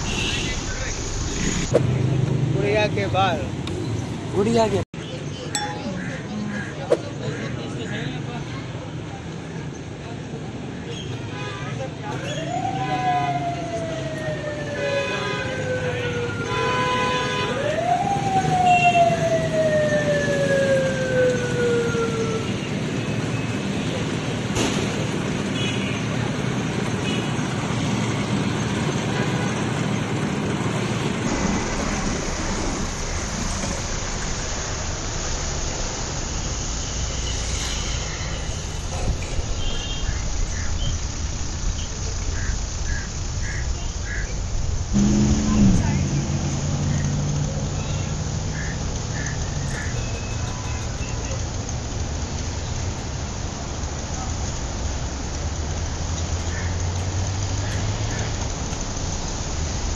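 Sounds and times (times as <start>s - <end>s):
street noise: 0.0s - 59.9s
spinning head whining: 44.9s - 47.6s.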